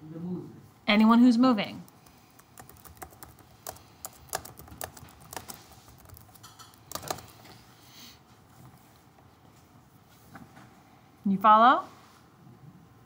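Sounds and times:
keyboard keystroke clicks: 1.8s - 7.3s.

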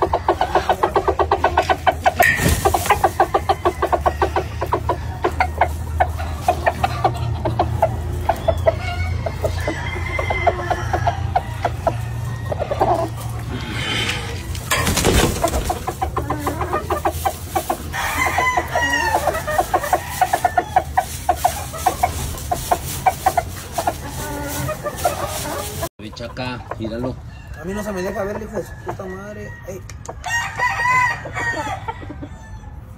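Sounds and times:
chickens clucking: 0.0s - 32.9s
rooster crowing: 3.2s - 5.2s, 8.8s - 14.4s, 17.9s - 20.9s, 27.3s - 32.8s.

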